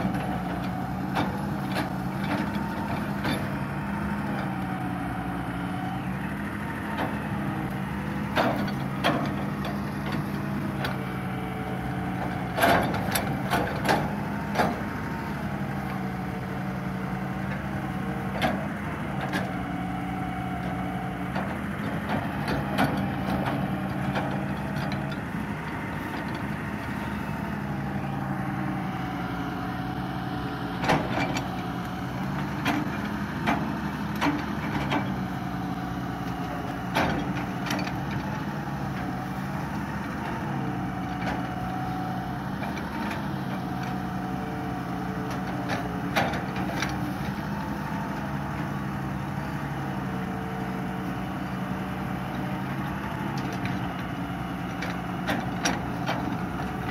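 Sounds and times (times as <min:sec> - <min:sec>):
diesel engine running: 0:00.0 - 0:56.9
excavator arm clanking: 0:06.6 - 0:29.2, 0:30.0 - 0:49.8.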